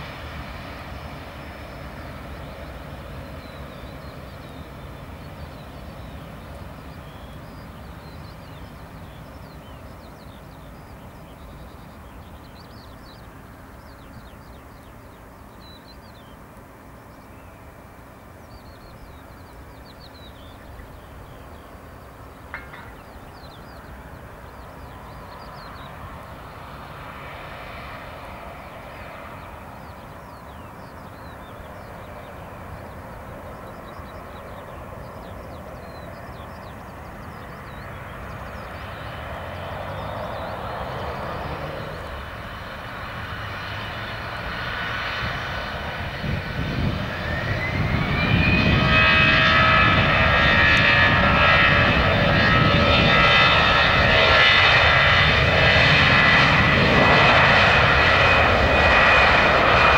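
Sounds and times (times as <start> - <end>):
jet engines spooling up: 37.0 - 59.9.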